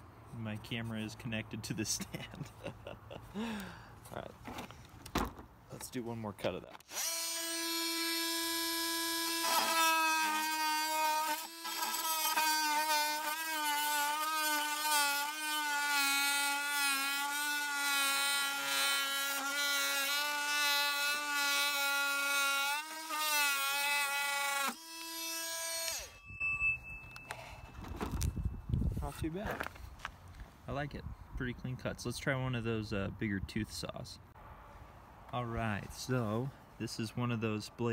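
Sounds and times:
multi-tool cutting wood: 6.8 - 26.2.

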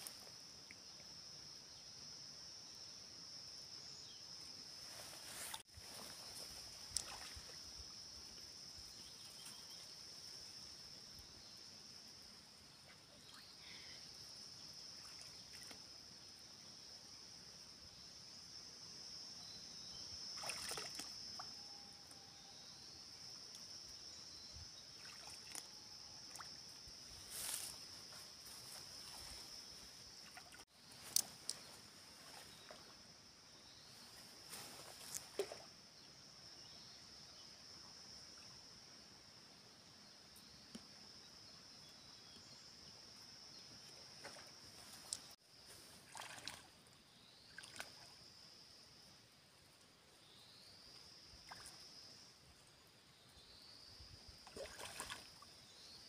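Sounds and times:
insects chirring: 0.0 - 56.0
sloshing in muddy water: 5.5 - 7.7, 20.3 - 21.5, 24.9 - 26.6, 45.9 - 46.8, 47.5 - 48.2, 54.4 - 55.5
short splashes: 7.0 - 7.6, 20.4 - 21.2, 25.0 - 25.6, 46.0 - 46.7, 47.6 - 48.1, 54.4 - 55.4.

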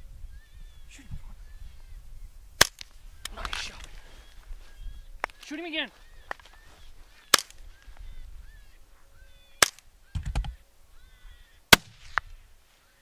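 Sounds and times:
faint high-pitched calls: 4.1 - 13.0
small crack: 7.3 - 7.6.

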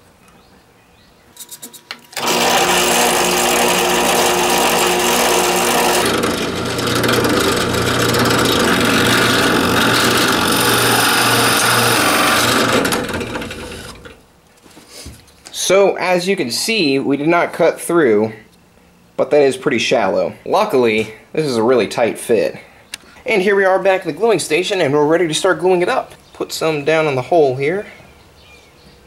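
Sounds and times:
drill press motor hum: 2.1 - 14.2
drill bit cutting wood: 2.2 - 14.2.

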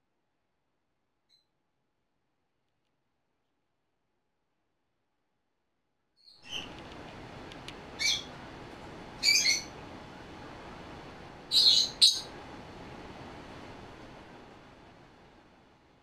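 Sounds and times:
low steady hiss: 6.4 - 16.0
parrot chirping: 7.9 - 8.3, 9.2 - 9.8, 11.5 - 12.4.

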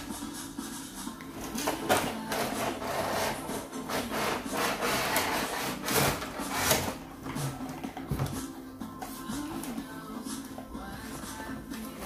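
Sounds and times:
cardboard scraping: 1.4 - 8.4.

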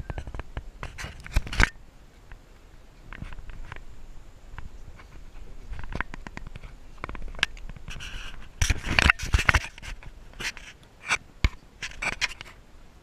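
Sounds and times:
camera handling knocks and scrapes: 5.8 - 12.5.

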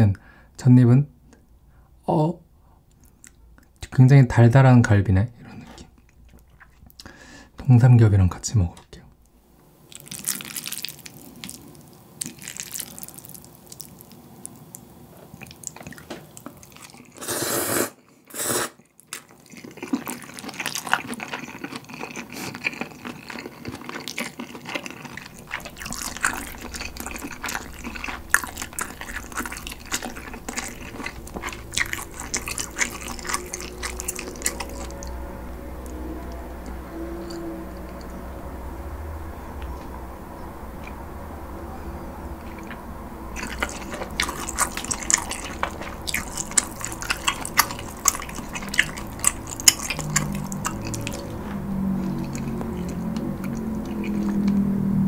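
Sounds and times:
chewing and slurping noodles: 9.9 - 36.0, 42.5 - 55.0.

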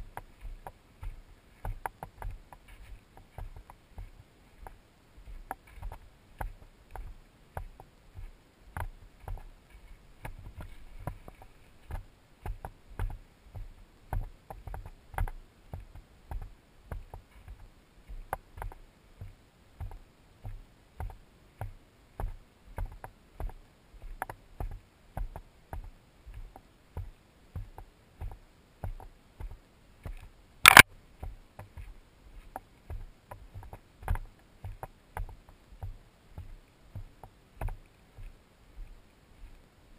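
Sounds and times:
footsteps on dirt trail: 0.0 - 39.6
camera rubbing against clothing: 0.3 - 6.0, 30.6 - 30.8
sharp loud click: 30.6 - 30.9.

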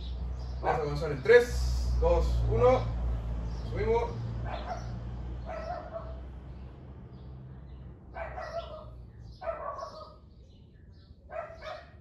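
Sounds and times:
dog barking: 4.4 - 6.3, 8.1 - 10.2, 11.3 - 12.0.

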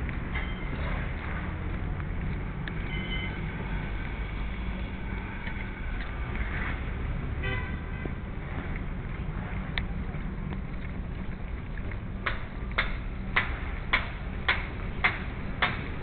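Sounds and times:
road traffic rumble: 0.0 - 16.0
vehicle horn toot: 2.9 - 3.4, 7.4 - 8.1.

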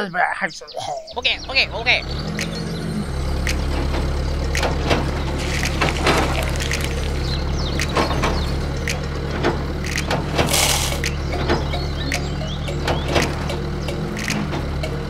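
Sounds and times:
toy excavator motor hum: 5.2 - 8.5, 9.7 - 12.4
bucket scooping grain: 5.3 - 7.5, 10.4 - 11.1.

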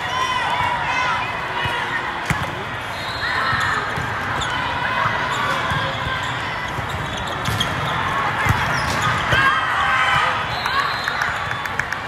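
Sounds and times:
hubbub of voices: 0.0 - 12.0
balls thumping and bouncing: 6.7 - 9.5.

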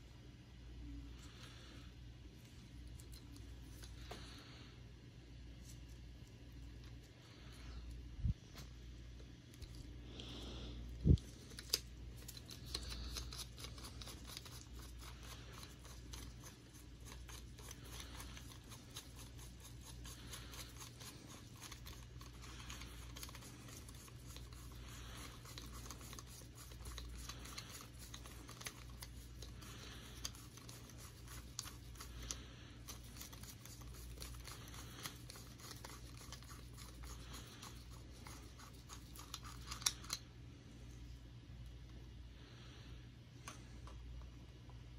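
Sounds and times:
steady low hum: 0.0 - 44.9
gloves rubbing: 11.0 - 40.3
small clicks and scratches: 11.1 - 40.3.

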